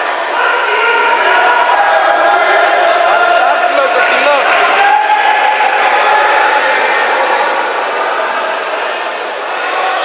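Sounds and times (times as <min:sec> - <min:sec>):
crowd chanting and shouting: 0:00.0 - 0:10.0.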